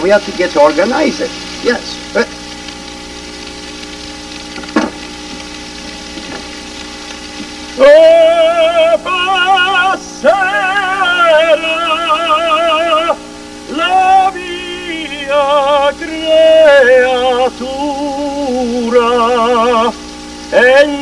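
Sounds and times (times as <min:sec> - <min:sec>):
vegetables sizzling in pans: 0:00.0 - 0:21.0
man singing with vibrato: 0:07.7 - 0:21.0.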